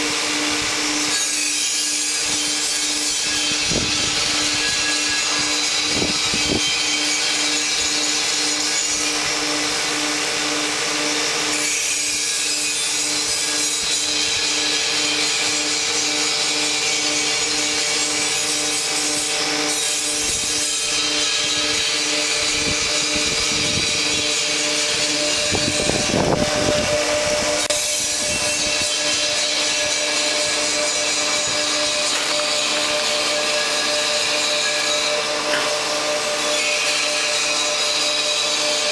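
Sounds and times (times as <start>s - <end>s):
throbbing motor hum: 19.3s - 34.0s.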